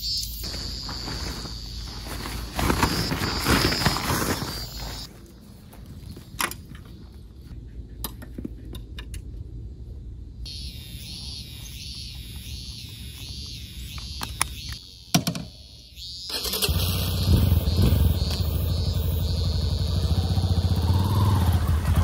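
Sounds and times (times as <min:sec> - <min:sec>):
high pulsing call: 0:10.5 - 0:21.7.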